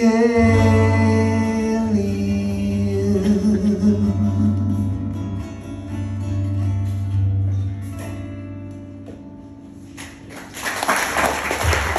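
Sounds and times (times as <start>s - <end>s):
acoustic guitar strumming: 0.0s - 10.3s
applause: 10.0s - 11.9s.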